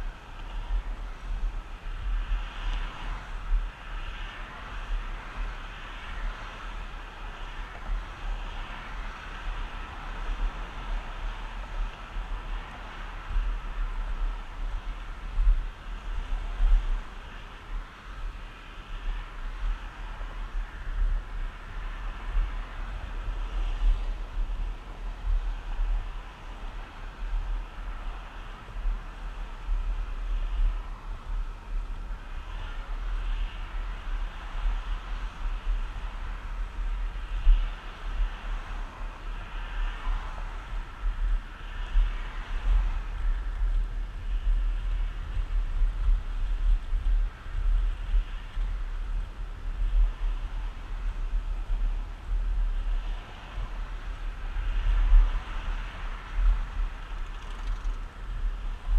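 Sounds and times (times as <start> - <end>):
skateboard wheels rolling on asphalt: 0.0 - 58.9
wind buffeting microphone: 0.0 - 58.9.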